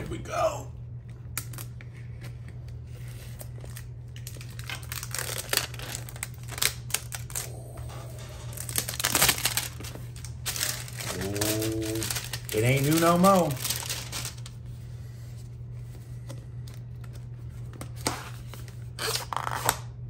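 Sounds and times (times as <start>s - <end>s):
plastic packaging rustling: 1.4s - 7.6s, 8.2s - 14.8s.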